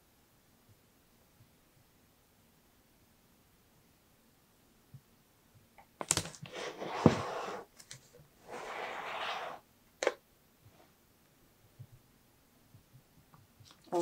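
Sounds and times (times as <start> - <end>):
cardboard scraping and rustling: 6.4 - 7.7.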